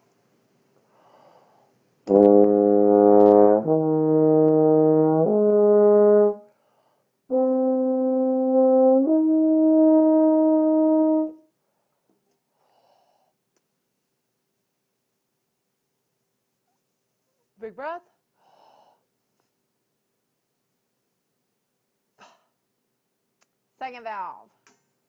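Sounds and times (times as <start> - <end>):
tuba playing slurred notes: 2.1 - 6.5, 7.3 - 11.4.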